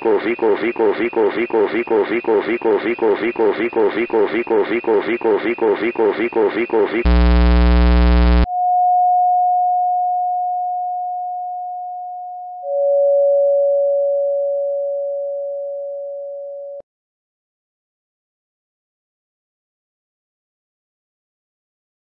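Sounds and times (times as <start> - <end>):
harsh electronic buzz: 0.0 - 8.5
pure electronic tone: 0.0 - 8.9
lower electronic tone: 7.0 - 9.3.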